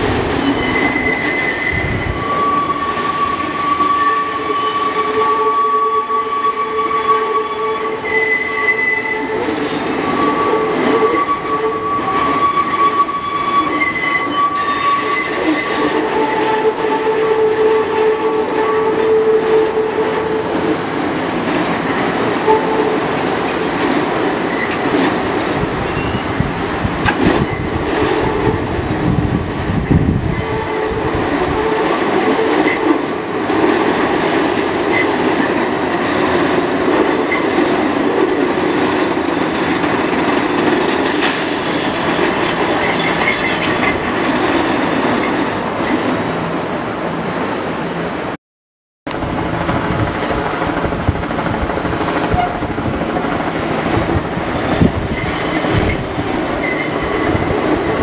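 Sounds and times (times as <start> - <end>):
wheel squeal: 0.0 - 16.0, 41.2 - 44.2, 54.8 - 57.6
train wheels rumbling on rails: 0.0 - 46.5, 49.1 - 58.0.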